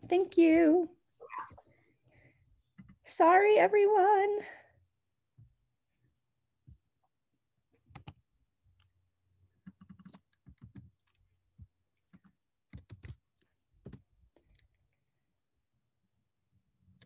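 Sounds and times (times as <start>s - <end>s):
computer keyboard typing: 9.6s - 11.2s, 12.1s - 13.2s.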